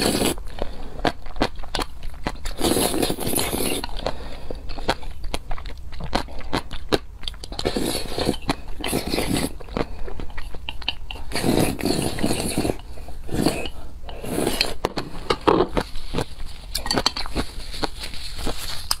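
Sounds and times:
noodles being slurped: 0.0 - 5.2, 7.4 - 15.1.

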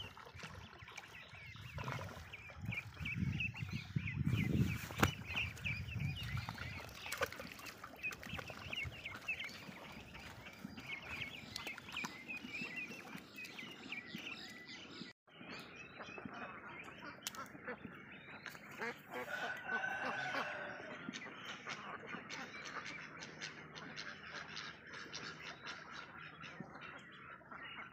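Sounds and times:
ducklings peeping: 0.1 - 14.7, 15.7 - 27.9
adult ducks quacking: 18.6 - 27.9.

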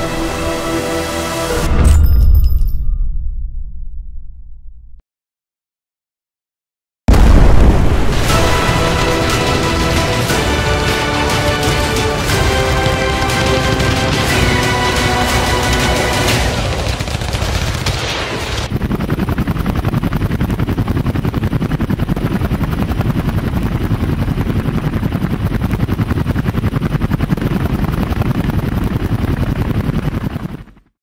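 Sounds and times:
music: 0.0 - 4.4, 8.1 - 17.3
helicopter rotors chopping: 8.1 - 30.9
rapid gunfire: 8.2 - 19.3.

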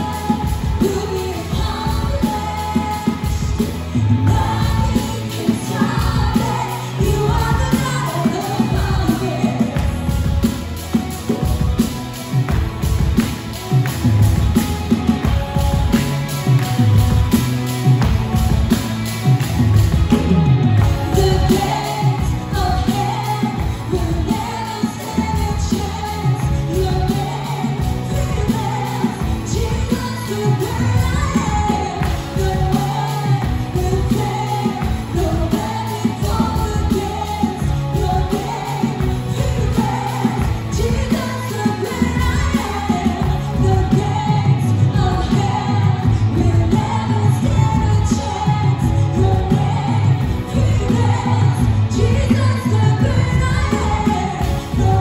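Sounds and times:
women backing vocals: 0.0 - 10.5, 20.0 - 55.0
full band playing: 0.0 - 55.0
woman singing lead: 0.0 - 55.0.

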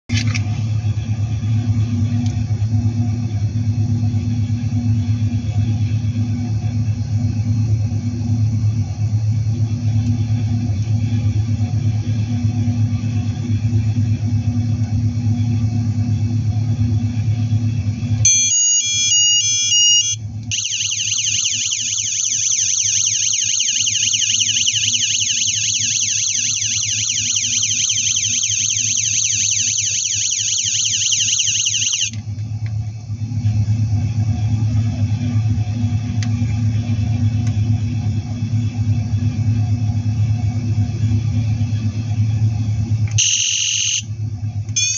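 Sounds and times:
electronic beeping tune: 18.3 - 32.1, 43.2 - 44.0
high-pitched yelp siren: 18.3 - 32.2, 43.2 - 44.0.

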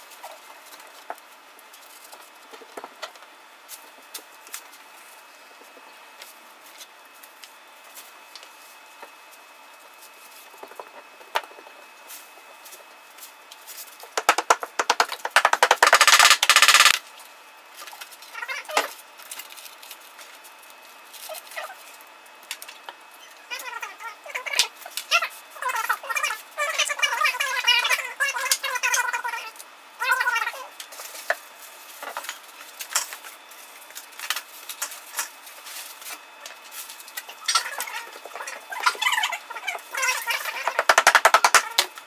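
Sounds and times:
loud crackling rattle: 14.2 - 17.0
tiles clicking and tapping: 14.2 - 17.0.

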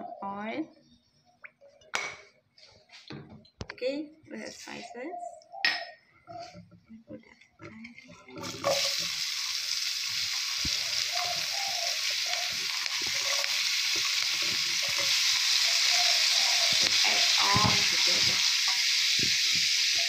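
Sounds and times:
onions sizzling in hot oil: 8.4 - 20.0.

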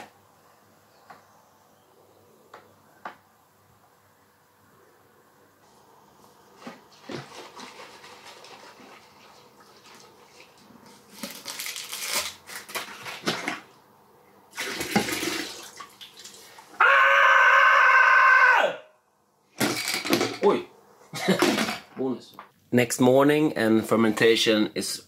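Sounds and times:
liquid sloshing and splashing: 6.6 - 11.3, 14.5 - 16.7
man screaming: 16.8 - 19.0.

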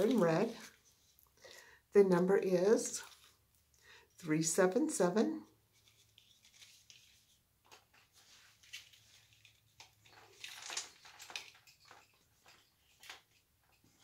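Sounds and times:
rustling of packaging: 0.0 - 1.3, 3.0 - 3.5, 5.7 - 14.0.

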